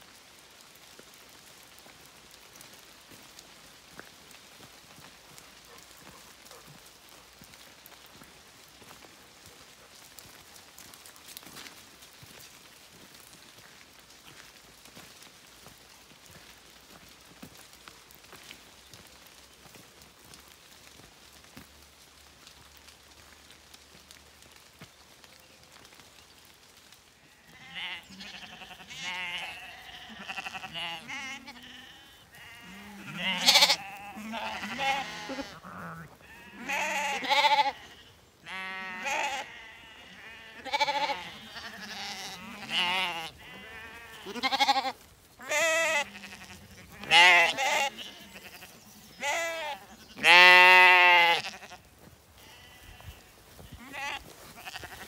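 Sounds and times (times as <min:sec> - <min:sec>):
lambs bleating: 0:27.3 - 0:51.8, 0:52.4 - 0:55.0.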